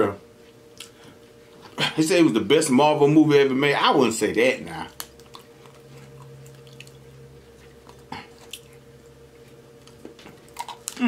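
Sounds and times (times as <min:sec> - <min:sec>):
person chewing food: 0:00.7 - 0:01.7, 0:04.9 - 0:11.0
low hum: 0:04.0 - 0:11.0.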